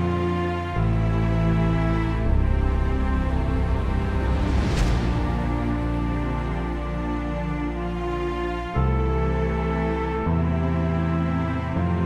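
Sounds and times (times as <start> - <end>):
music of sustained notes: 0.0 - 12.0
brief rushing swell: 3.4 - 6.8.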